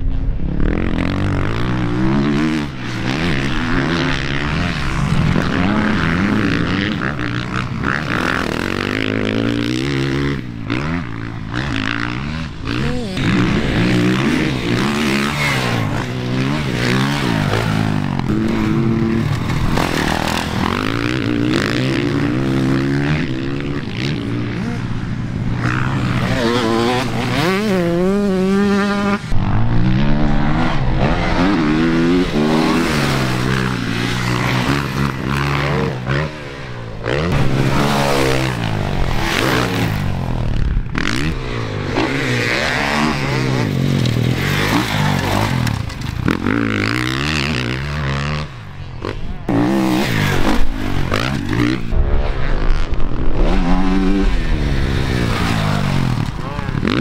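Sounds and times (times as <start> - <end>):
dirt bike engines revving: 0.0 - 57.0.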